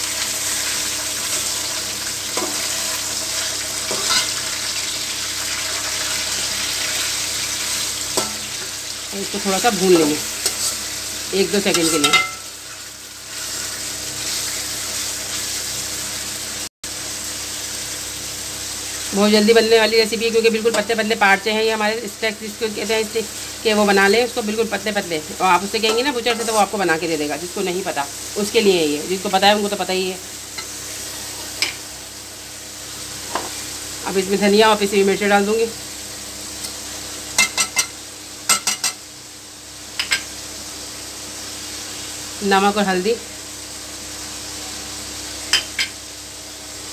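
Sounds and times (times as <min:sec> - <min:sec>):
beef sizzling in hot oil: 0:00.0 - 0:46.9
metal spoon clinking on pan: 0:11.8 - 0:12.4, 0:38.5 - 0:39.0.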